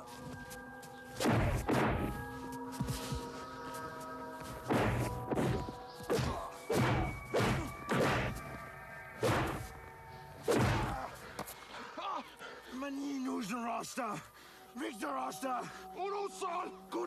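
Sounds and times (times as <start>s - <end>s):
heavy punch sound effects: 1.2s - 2.2s, 4.7s - 5.6s, 6.2s - 8.4s, 9.2s - 9.7s, 10.5s - 11.0s.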